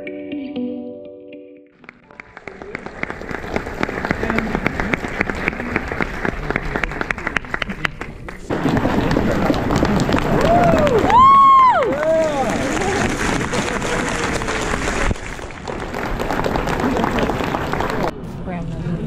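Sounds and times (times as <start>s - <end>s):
audience applauding: 1.8s - 18.1s.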